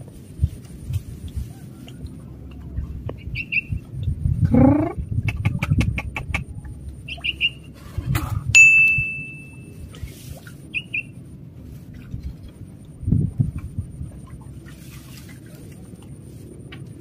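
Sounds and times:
small birds chirping: 3.1s - 3.8s, 7.0s - 7.7s
sharp metallic ding: 8.6s - 9.8s.

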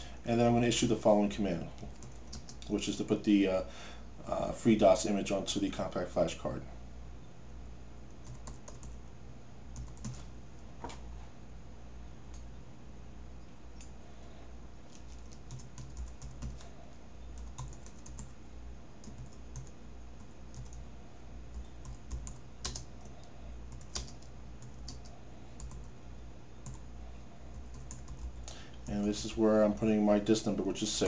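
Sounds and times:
low steady hum: 0.0s - 31.0s
computer keyboard typing: 1.8s - 2.7s, 8.2s - 9.0s, 9.8s - 10.2s, 14.9s - 16.7s, 17.4s - 18.4s, 19.0s - 20.8s, 21.5s - 25.9s, 26.6s - 26.9s, 27.5s - 28.4s.

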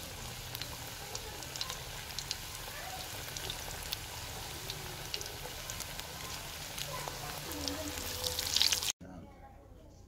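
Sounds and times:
food deep-frying in hot oil: 0.0s - 9.0s.

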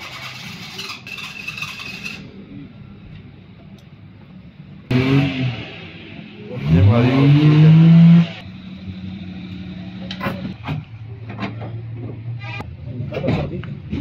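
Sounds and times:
car engine revving and idling: 4.8s - 11.2s.

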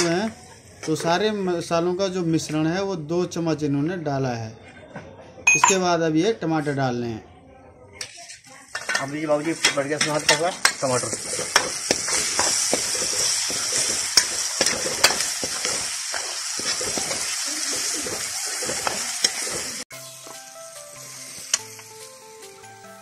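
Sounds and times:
tomatoes sizzling in a pan: 0.0s - 1.8s, 8.1s - 23.0s
metal ladle scraping a pan: 8.1s - 19.9s
soft background music: 19.9s - 23.0s.

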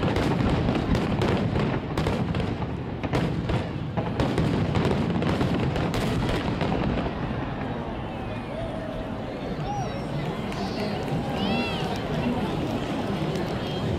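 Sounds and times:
fireworks booming and cracking: 0.0s - 8.3s.

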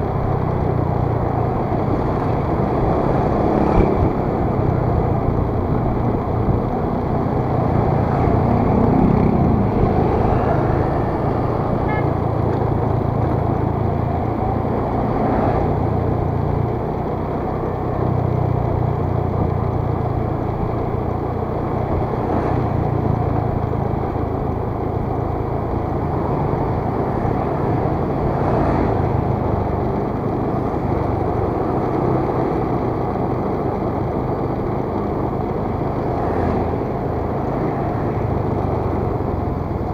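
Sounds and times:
wind and road noise: 0.0s - 39.9s
scooter engine running: 0.1s - 15.1s.

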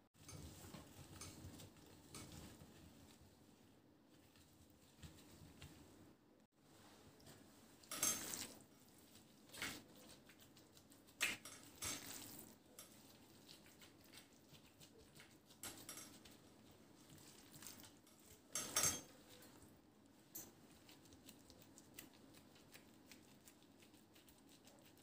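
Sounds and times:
food rustling: 6.7s - 25.0s
glass dishes clinking: 18.6s - 19.2s.

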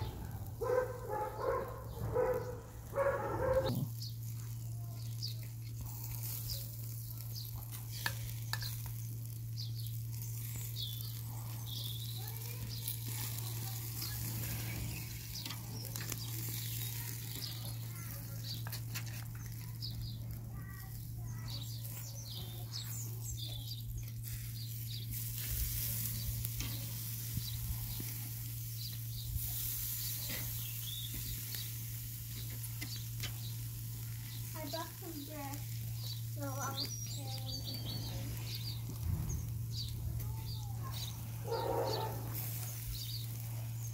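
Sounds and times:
low hum: 0.0s - 4.0s
meat sizzling on a grill: 0.0s - 43.9s.

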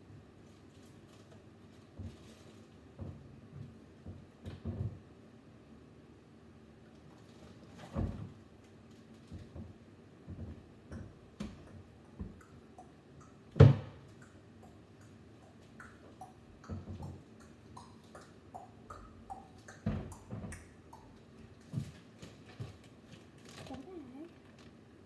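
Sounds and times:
knocks and bumps from climbing: 1.8s - 5.2s, 7.7s - 8.5s, 9.2s - 12.7s.

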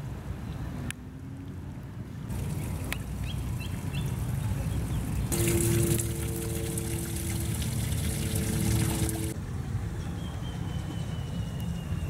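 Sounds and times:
water trickling down rocks: 2.3s - 9.4s
two-note hum: 5.3s - 9.4s.

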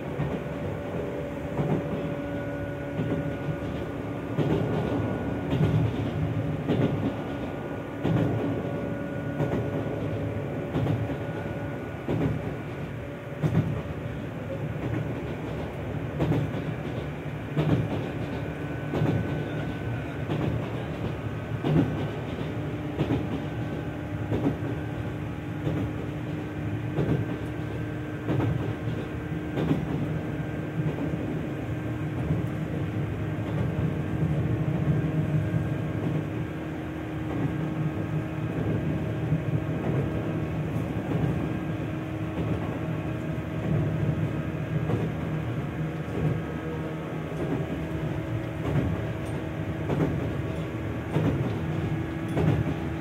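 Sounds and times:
wheels clacking over rail joints: 47.3s - 53.0s.

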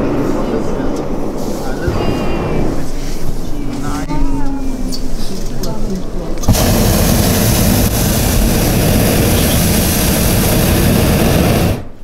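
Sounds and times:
propane burner roaring: 6.4s - 12.0s.

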